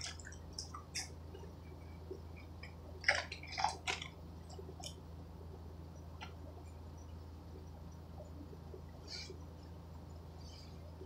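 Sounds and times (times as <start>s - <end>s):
man chewing food: 0.0s - 5.1s
steady low hum: 0.0s - 11.0s
crackly crunches: 2.4s - 5.0s.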